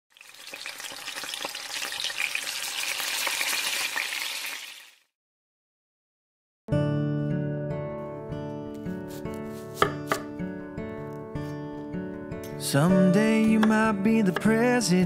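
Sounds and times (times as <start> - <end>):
food sizzling in hot oil: 0.1 - 5.1
music: 6.7 - 15.0.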